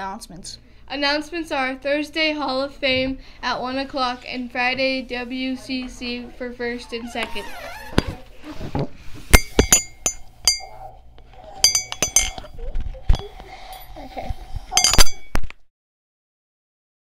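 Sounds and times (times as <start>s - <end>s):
ceramic mug clinks: 9.4s - 10.8s, 11.6s - 13.3s, 14.8s - 15.4s.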